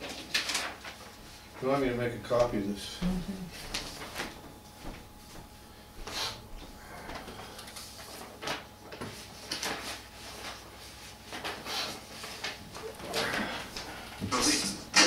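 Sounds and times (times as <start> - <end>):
scrapes and rustles of handled things: 0.0 - 2.6, 3.5 - 6.4, 7.0 - 14.8
low steady hum: 1.2 - 10.8.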